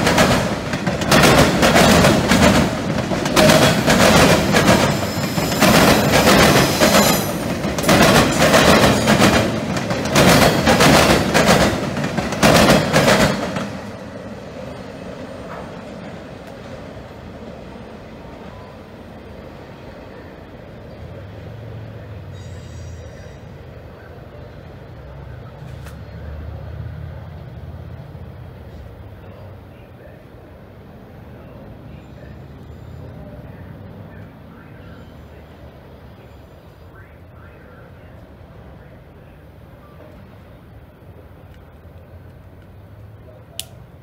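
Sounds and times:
train wheels clattering over crossing: 0:00.0 - 0:17.6
freight train wheels rumbling: 0:00.0 - 0:44.0.

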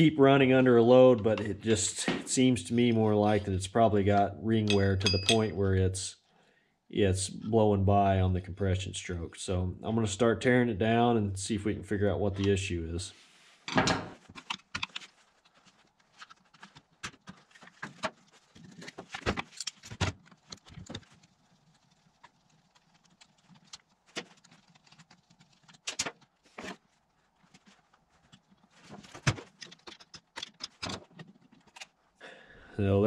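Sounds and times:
screwdriver and plastic parts clatter: 0:13.7 - 0:22.1, 0:22.7 - 0:26.9, 0:27.5 - 0:32.0.

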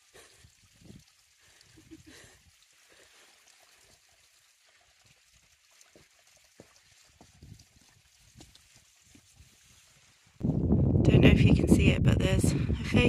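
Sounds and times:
water trickling down rock: 0:00.0 - 0:10.4.

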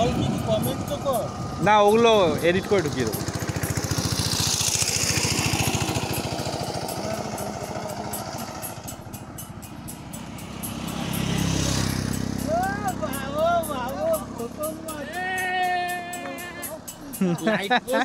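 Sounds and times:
motorcycle engine putter: 0:00.0 - 0:18.0.

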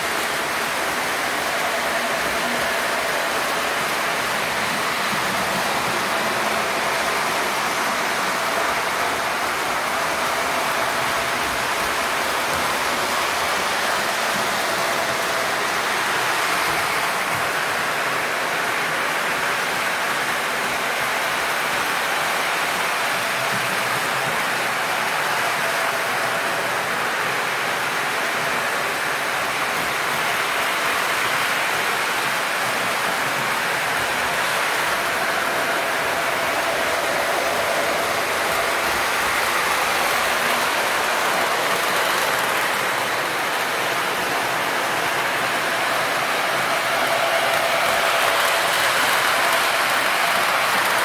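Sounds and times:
model train wheels and motors hissing: 0:00.0 - 0:51.0.

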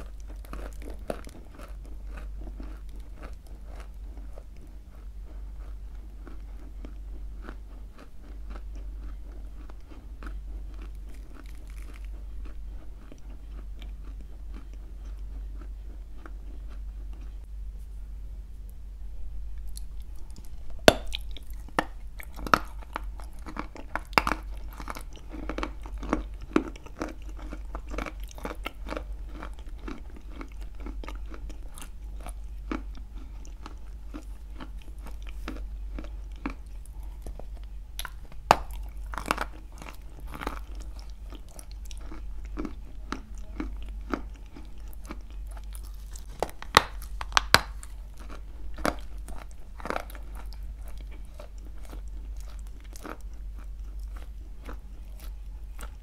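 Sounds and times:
soft chewing: 0:00.0 - 0:18.8, 0:19.5 - 0:56.0
crunching dry clay: 0:45.7 - 0:50.2.

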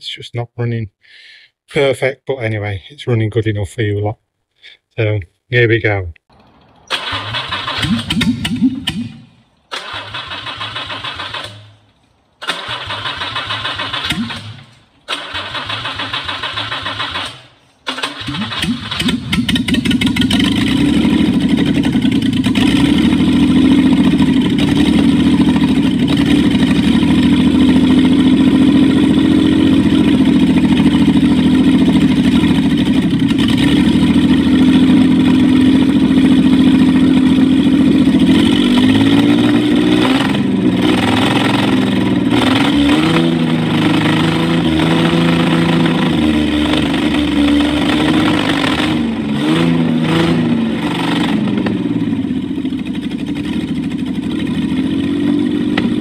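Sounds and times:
starter motor cranking: 0:12.4 - 0:20.3
engine running unevenly: 0:19.0 - 0:56.0.

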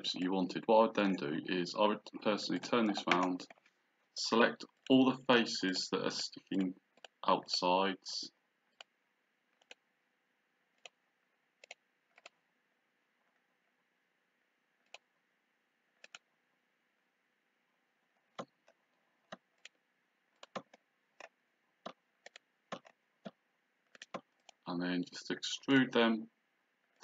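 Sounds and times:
computer mouse clicking: 0:02.8 - 0:03.7, 0:07.0 - 0:07.2, 0:08.7 - 0:08.9, 0:09.6 - 0:09.8, 0:10.8 - 0:11.0, 0:11.6 - 0:12.4, 0:14.8 - 0:15.1, 0:16.0 - 0:16.3, 0:18.3 - 0:19.8, 0:20.4 - 0:24.6.

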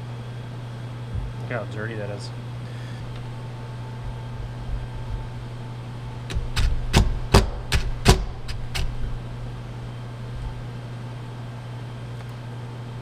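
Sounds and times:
steady low hum: 0:00.0 - 0:13.0
impact driver bursts: 0:06.3 - 0:09.0.

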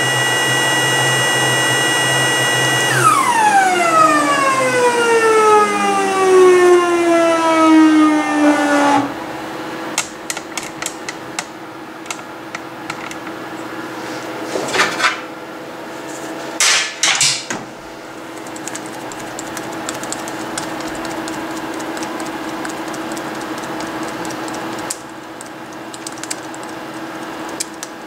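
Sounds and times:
small motor running: 0:00.0 - 0:04.6, 0:18.4 - 0:28.0.

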